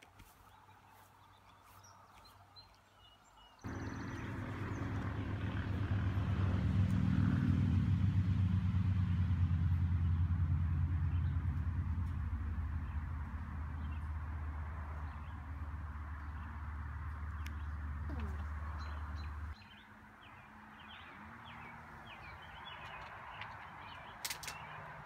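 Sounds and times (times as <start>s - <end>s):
low engine hum: 3.6s - 19.6s.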